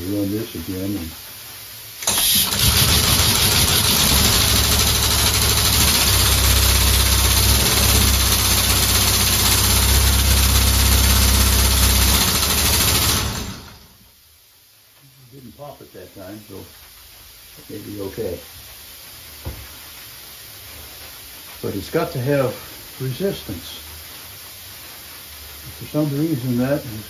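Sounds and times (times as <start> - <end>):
air exhaust hissing: 0.0 - 27.0
pneumatic cylinders rumbling: 2.0 - 14.0.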